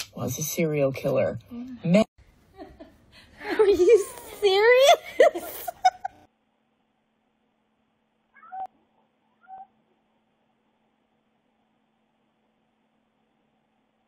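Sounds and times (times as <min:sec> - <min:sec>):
cat meowing: 0:08.4 - 0:08.7, 0:09.3 - 0:09.8.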